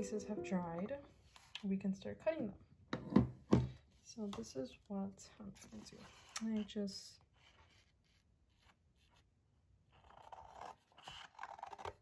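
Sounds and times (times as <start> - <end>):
scissors cutting paper: 10.0 - 12.0.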